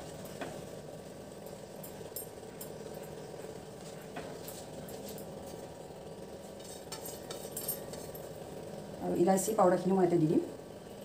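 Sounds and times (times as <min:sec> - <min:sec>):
steady low hum: 0:00.0 - 0:11.0
utensils and bowls clicking: 0:06.6 - 0:08.3.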